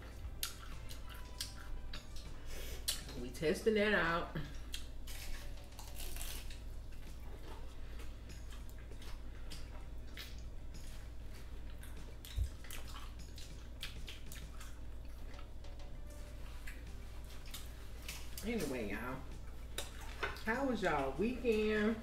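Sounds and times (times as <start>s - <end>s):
low steady hum: 0.0s - 22.0s
crunchy chewing: 0.2s - 3.0s, 4.7s - 15.5s.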